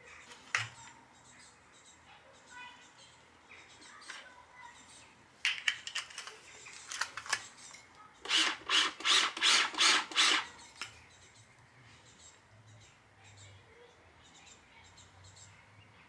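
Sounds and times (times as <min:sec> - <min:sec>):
hand winder spinning: 0:08.3 - 0:10.4.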